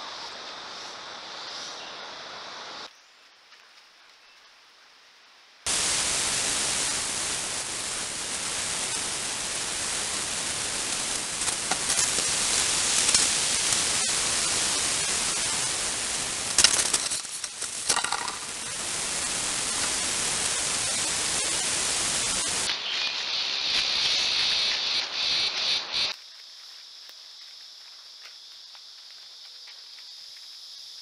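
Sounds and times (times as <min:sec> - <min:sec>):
microphone hiss: 0:00.0 - 0:26.1
crackles and scrapes: 0:10.9 - 0:14.2, 0:16.4 - 0:18.8.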